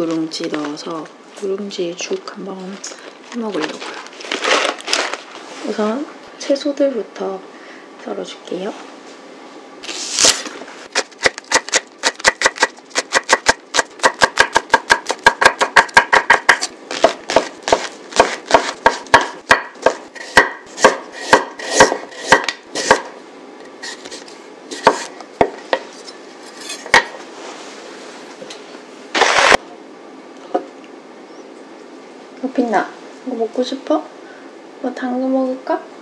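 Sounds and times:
knife chopping on wooden board: 11.0s - 23.1s, 23.9s - 25.9s, 26.6s - 27.2s.

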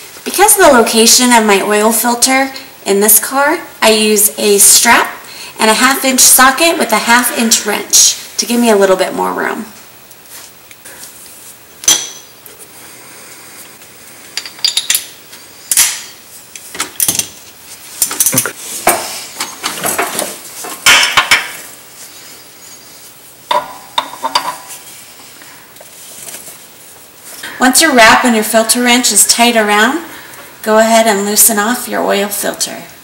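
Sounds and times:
metal tools clinking and scraping: 14.4s - 16.2s, 16.8s - 17.4s, 18.0s - 20.2s.

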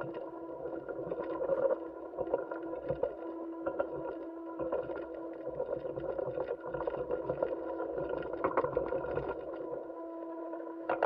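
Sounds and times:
steady machine hum with tones: 0.0s - 11.0s.

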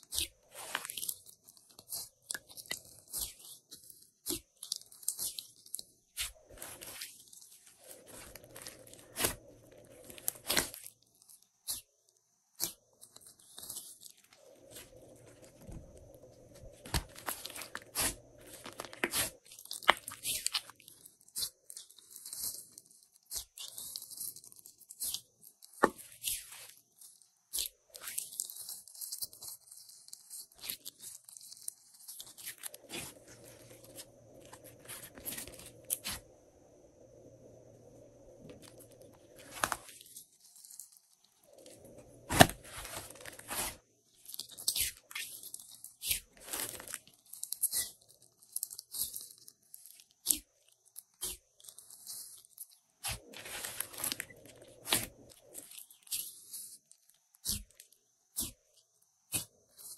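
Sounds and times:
slime popping and crackling: 0.1s - 11.9s, 16.7s - 26.4s.

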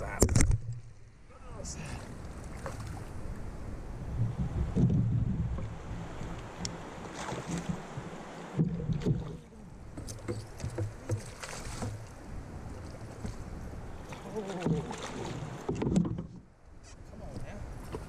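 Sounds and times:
water sloshing: 1.8s - 3.4s, 4.3s - 16.6s
fish splashing and thrashing: 6.4s - 9.4s, 10.0s - 12.2s, 14.1s - 16.3s
sharp knocks: 10.0s - 12.0s.

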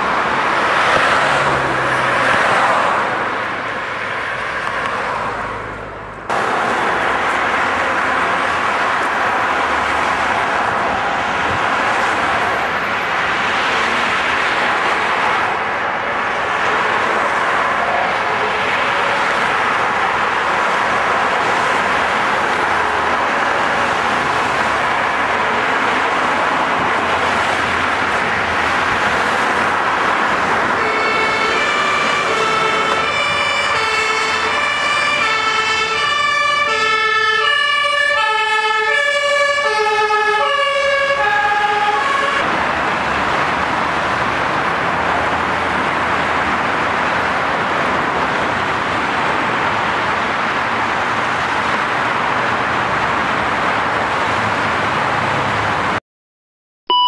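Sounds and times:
motorway traffic noise: 0.0s - 56.0s
two-tone emergency siren: 30.7s - 42.5s.

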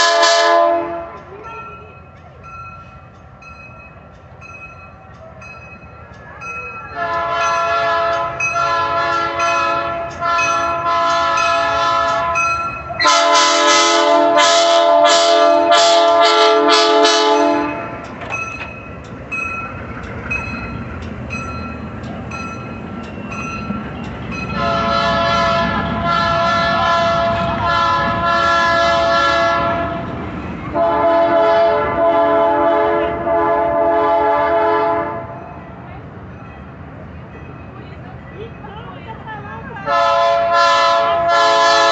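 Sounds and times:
train horn blasts: 0.0s - 1.3s, 6.9s - 17.9s, 24.6s - 35.4s, 39.8s - 41.9s
train cars rolling by: 0.0s - 41.9s
wheels clicking over rail joints: 0.5s - 30.8s.

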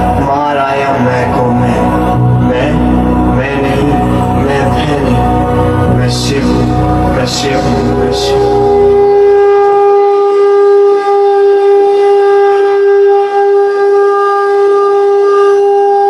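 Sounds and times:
low rumble: 0.0s - 9.8s
conch shell blown in long note: 8.0s - 16.0s.

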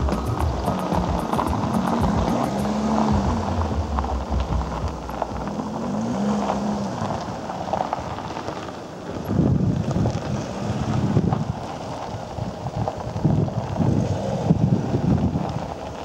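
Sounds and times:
low hum shifting pitch: 0.0s - 7.0s
wind buffeting microphone: 0.0s - 8.4s, 9.0s - 16.0s.

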